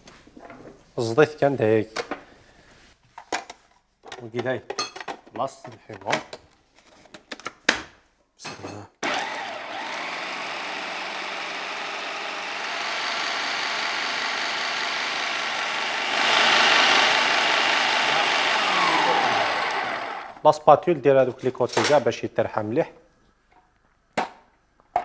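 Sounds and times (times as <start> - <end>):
food processor running: 9.0 - 20.4.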